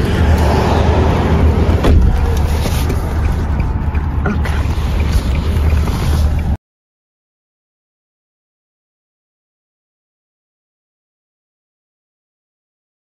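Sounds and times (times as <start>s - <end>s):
car rumble from inside cabin: 0.0s - 6.6s.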